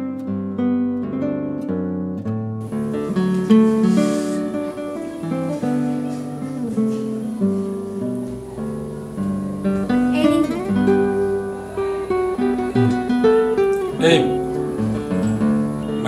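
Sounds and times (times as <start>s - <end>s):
acoustic guitar plucked melody: 0.0s - 16.0s.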